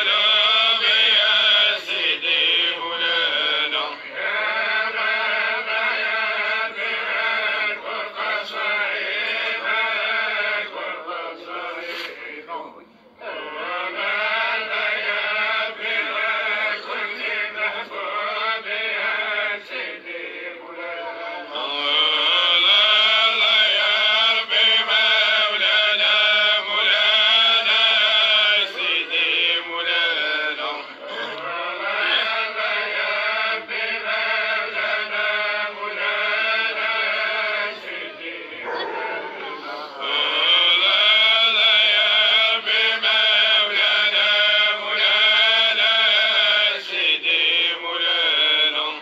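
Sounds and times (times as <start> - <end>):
person chanting in held notes: 0.0 - 49.0
man chanting: 37.8 - 42.3.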